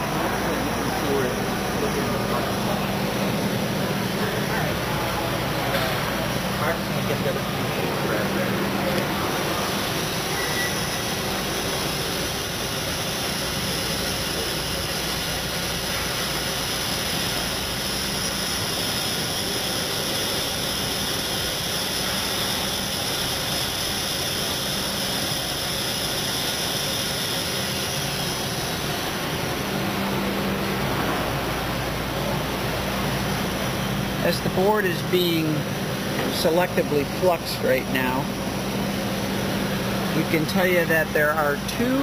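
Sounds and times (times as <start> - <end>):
fans and air rushing: 0.0 - 42.0
soldering machine running: 0.0 - 42.0
faint high steady tones: 6.6 - 13.1.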